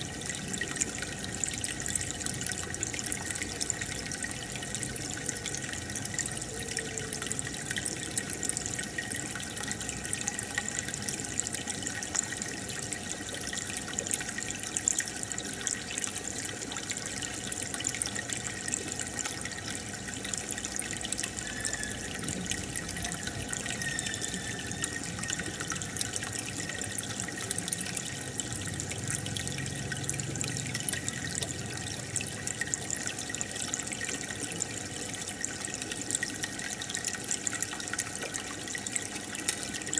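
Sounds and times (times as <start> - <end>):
water trickling: 0.0 - 39.9
aquarium aerator bubbling: 12.9 - 39.9.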